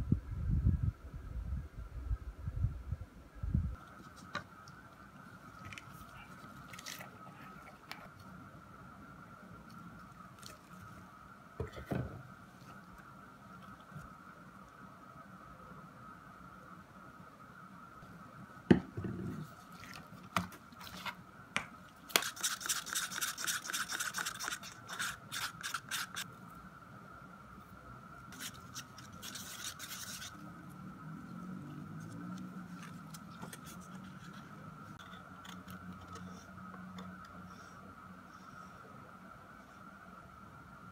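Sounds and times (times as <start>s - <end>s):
faint high hum: 0.0s - 40.9s
rubbing and scraping strokes: 22.1s - 26.3s, 28.3s - 30.6s.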